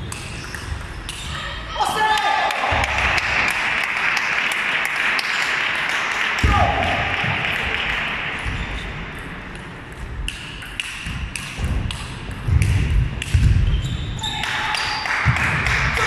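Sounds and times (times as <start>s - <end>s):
echoing hall background: 0.0s - 16.0s.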